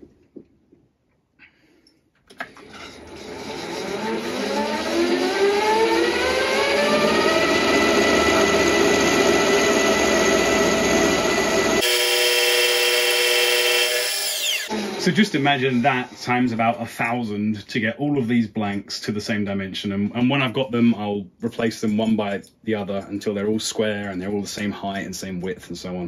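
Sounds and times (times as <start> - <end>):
end mill cutting metal: 2.6 - 15.5
milling machine spindle whine: 3.0 - 16.2.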